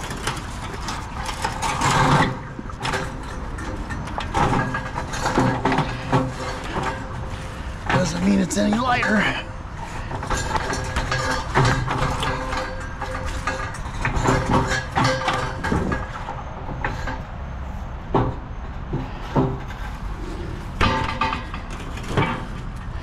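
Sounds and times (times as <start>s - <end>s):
metal water heater knocking and scraping: 10.2s - 16.2s.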